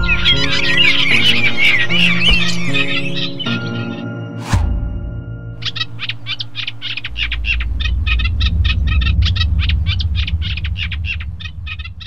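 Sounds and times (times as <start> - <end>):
canary chirping: 0.0 - 4.0, 5.6 - 12.0
low rumble: 4.4 - 12.0.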